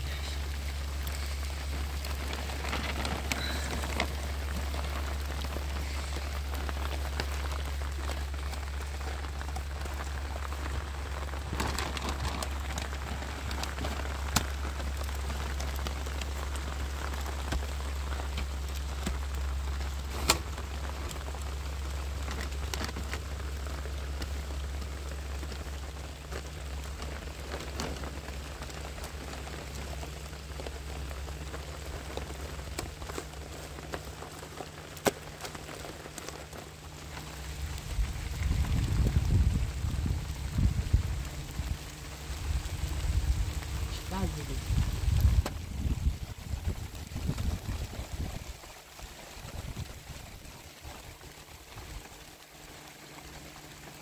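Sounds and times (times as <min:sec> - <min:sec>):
sharp raindrop hits: 0:00.0 - 0:54.0
steady rain: 0:00.0 - 0:54.0
low rumble: 0:35.7 - 0:48.7.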